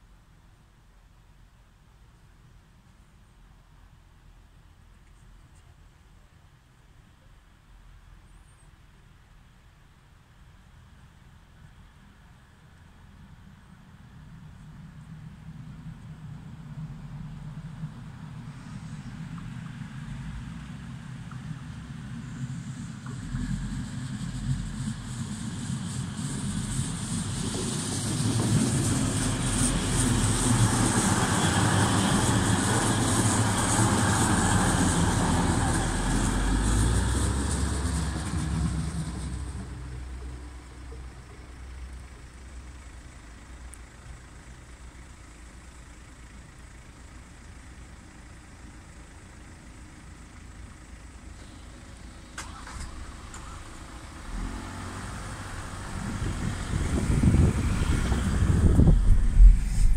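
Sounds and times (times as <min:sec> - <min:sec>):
train engine rumble: 0:00.0 - 0:59.9
train wheel noise: 0:21.1 - 0:40.4
crossing barrier clicks: 0:52.4 - 0:53.6.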